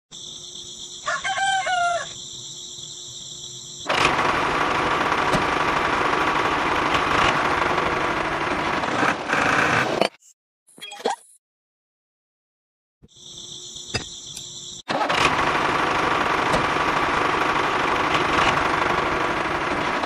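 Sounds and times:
rooster crowing: 1.0 - 2.2.

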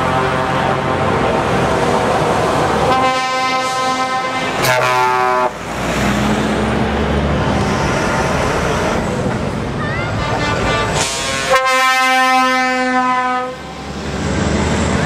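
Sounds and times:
road noise: 0.0 - 15.0
truck horn blast: 2.8 - 5.6, 10.1 - 13.9
diesel engine running: 5.5 - 11.5.

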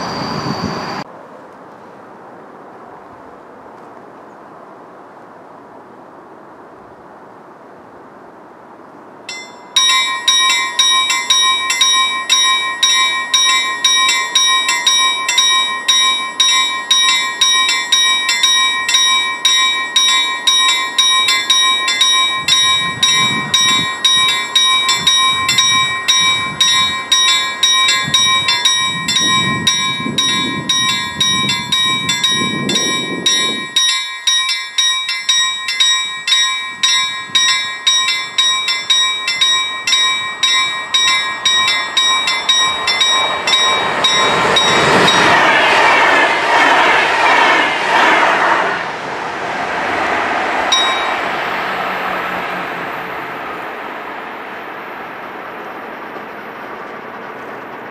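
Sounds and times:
level crossing bell ringing: 9.3 - 45.5, 50.7 - 51.9.

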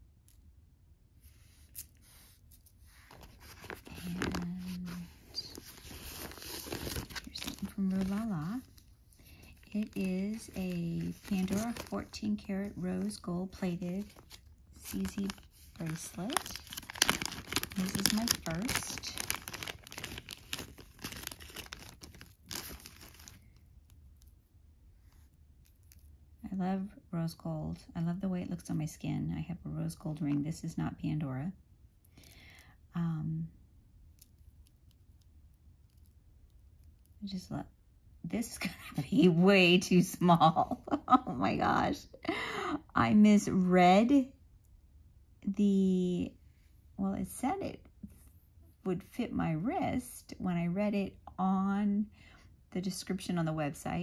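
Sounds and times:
plastic bag crinkling: 3.1 - 23.6
paper mailer rustling: 3.2 - 8.6, 9.4 - 23.4.

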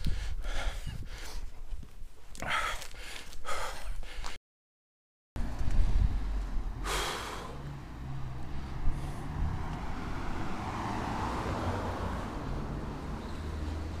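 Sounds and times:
low steady rumble: 5.4 - 9.6
car passing: 5.4 - 14.0.

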